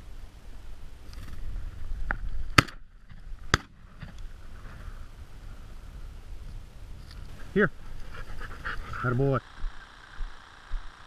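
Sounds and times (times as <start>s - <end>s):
shotgun shots: 2.6s - 2.8s.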